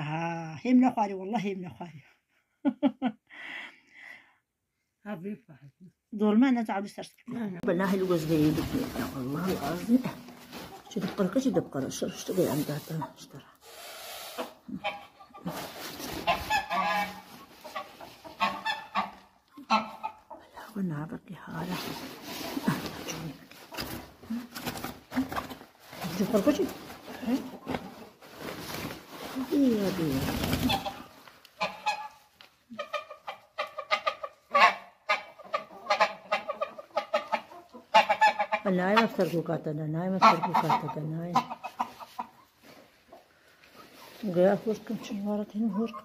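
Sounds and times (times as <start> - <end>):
goose honking: 16.2 - 20.1.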